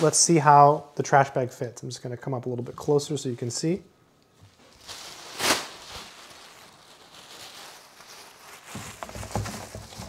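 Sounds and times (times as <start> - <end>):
plastic trash bag rustling: 4.5 - 10.0
trash bag swish: 4.8 - 6.4.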